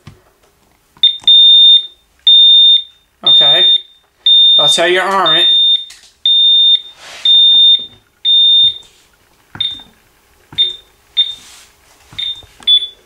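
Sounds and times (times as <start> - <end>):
alarm keypad long beeps: 1.0 - 8.9, 9.6 - 9.9, 10.6 - 11.4, 12.2 - 13.0.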